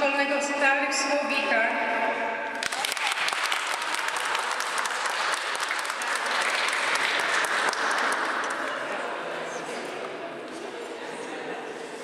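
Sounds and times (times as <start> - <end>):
audience applauding: 2.6 - 9.2.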